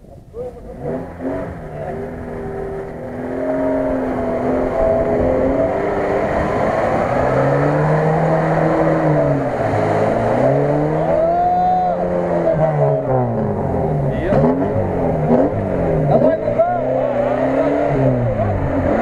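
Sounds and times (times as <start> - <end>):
car engine revving: 0.4 - 19.0
churned water washing: 1.1 - 19.0.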